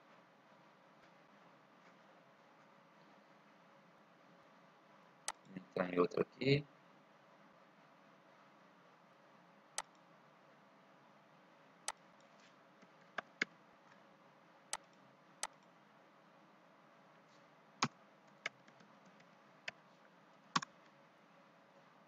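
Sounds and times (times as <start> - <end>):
mouse and keyboard clicks: 14.7 - 15.7, 20.5 - 20.8.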